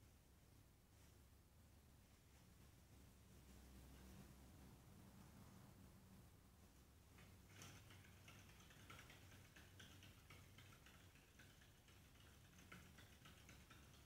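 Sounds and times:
hamster wheel clicking: 0:07.2 - 0:14.0.

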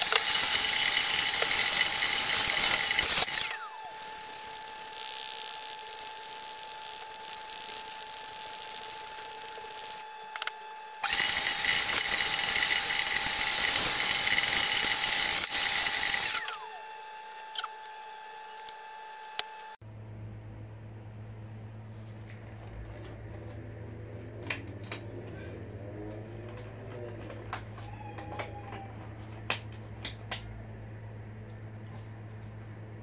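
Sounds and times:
shop vacuum whine: 0:00.0 - 0:19.8.

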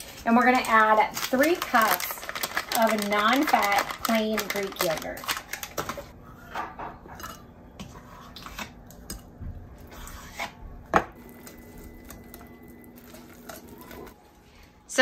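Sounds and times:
utensils clinking against glass bowl: 0:11.3 - 0:14.2.

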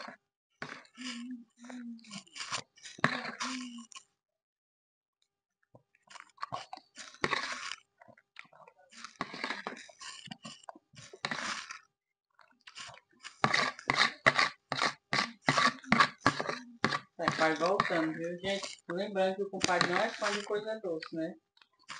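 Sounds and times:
spoon scraping plastic bowl: 0:00.0 - 0:04.0, 0:06.1 - 0:07.8, 0:08.9 - 0:11.9, 0:12.7 - 0:21.2
chewing: 0:00.6 - 0:04.1, 0:05.8 - 0:21.9.

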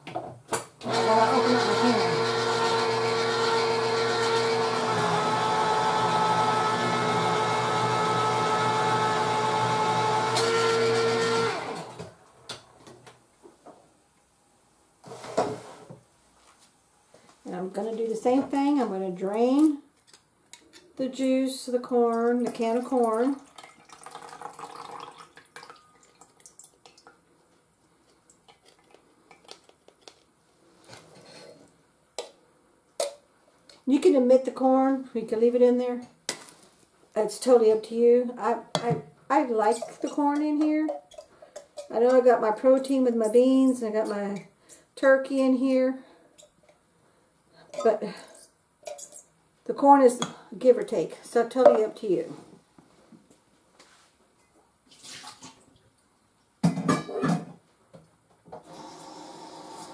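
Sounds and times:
electric can opener whine: 0:00.8 - 0:12.2, 0:58.6 - 0:59.9.

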